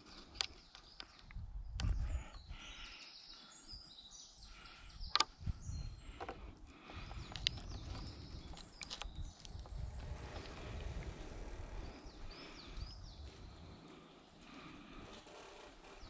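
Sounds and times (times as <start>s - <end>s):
birds chirping: 0.0s - 16.0s
cord rustling and clicking on wood: 6.1s - 11.5s.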